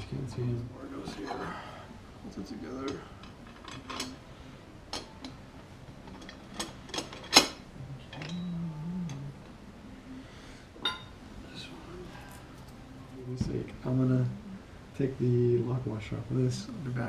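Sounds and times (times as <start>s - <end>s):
metal parts clicking and knocking: 3.2s - 4.2s, 6.0s - 8.4s.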